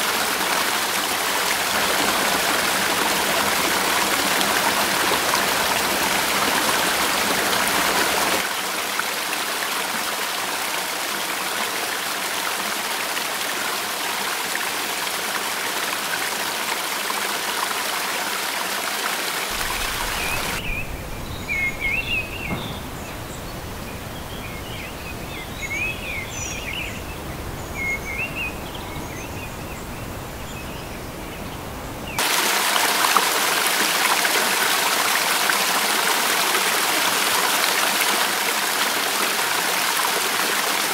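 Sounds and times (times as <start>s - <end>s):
stream running over rocks: 0.0s - 31.3s, 32.0s - 40.9s
birds chirping: 19.5s - 32.2s.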